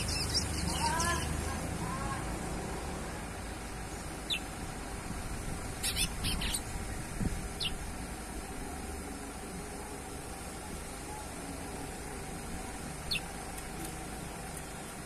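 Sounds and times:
bird chirping: 0:00.0 - 0:01.4, 0:03.5 - 0:04.5, 0:05.8 - 0:06.7, 0:07.6 - 0:07.8, 0:13.0 - 0:13.3
low background rumble: 0:00.0 - 0:15.0.

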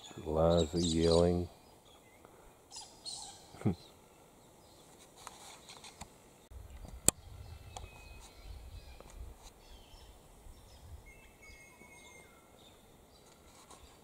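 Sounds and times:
birds chirping and whistling: 0:00.0 - 0:04.0, 0:06.7 - 0:14.0.

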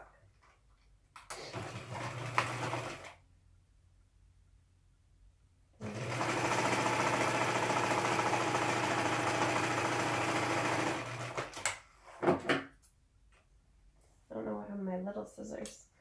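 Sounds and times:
sewing machine stitching: 0:01.3 - 0:03.2, 0:05.8 - 0:11.8.

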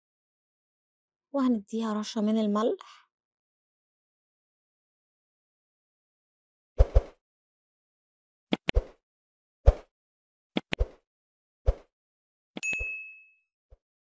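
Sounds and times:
bell ding: 0:12.6 - 0:13.4.

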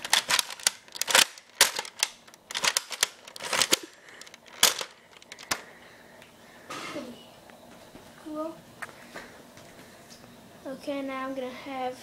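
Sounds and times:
plastic toy blaster clicks and rattles: 0:00.0 - 0:05.6.

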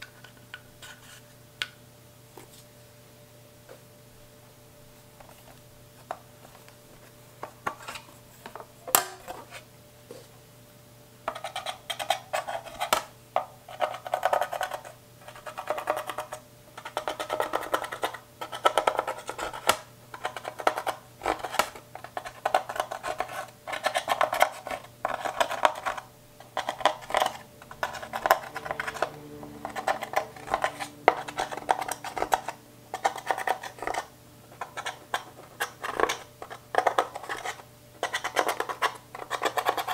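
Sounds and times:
metal pick scraping eyeshadow: 0:13.7 - 0:39.9.

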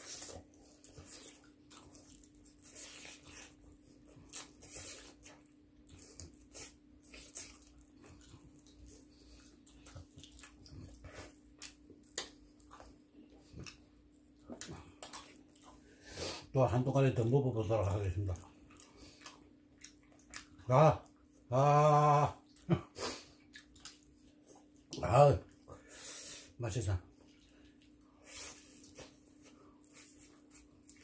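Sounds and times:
people chewing and crunching: 0:00.0 - 0:31.0.

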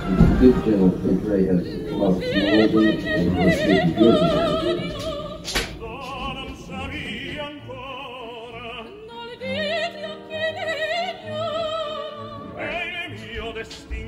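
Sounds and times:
classical accompaniment: 0:00.0 - 0:14.0
opera singer with wide vibrato: 0:00.0 - 0:14.0
sharp click: 0:05.4 - 0:06.2.

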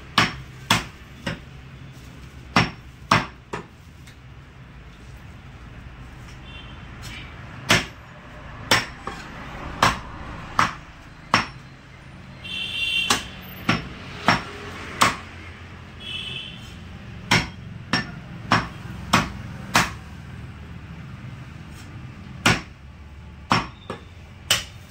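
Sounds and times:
cleaver chopping meat and bones: 0:00.0 - 0:01.6, 0:02.5 - 0:04.2, 0:07.0 - 0:08.0, 0:08.6 - 0:11.7, 0:13.0 - 0:15.4, 0:17.2 - 0:20.1, 0:21.8 - 0:22.8, 0:23.4 - 0:24.9.

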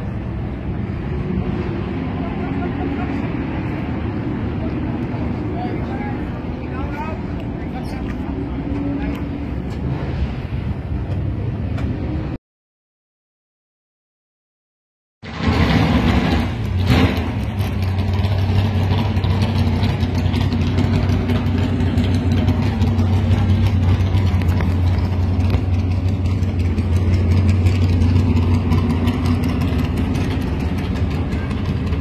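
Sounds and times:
race car engine idling: 0:02.0 - 0:09.8, 0:16.2 - 0:32.0.

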